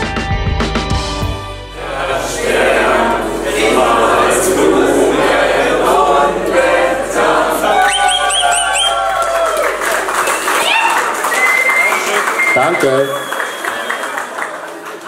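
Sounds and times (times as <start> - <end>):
group of voices singing: 1.6 - 9.9
high rising whistle-like sounds: 1.7 - 12.1.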